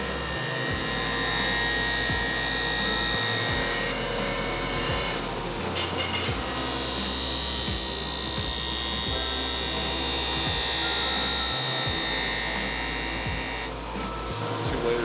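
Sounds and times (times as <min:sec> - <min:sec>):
bench grinder grinding knife: 0:00.0 - 0:15.0.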